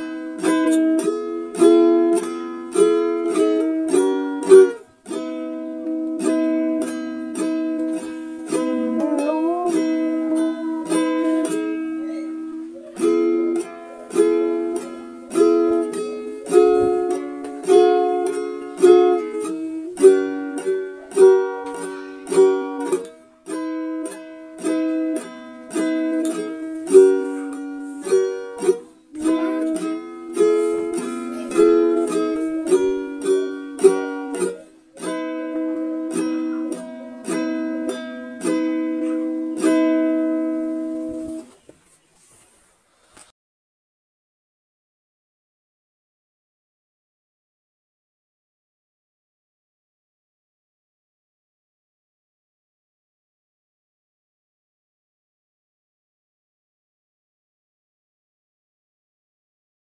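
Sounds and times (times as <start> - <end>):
plucked string music: 0.0 - 41.7.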